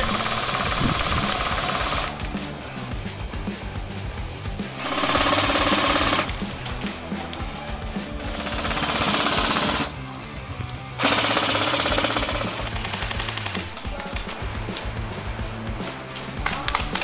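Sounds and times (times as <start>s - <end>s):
airsoft guns firing bursts: 0.0s - 2.4s, 4.8s - 7.0s, 7.6s - 10.0s, 11.0s - 14.2s
background music with bass: 0.0s - 17.0s.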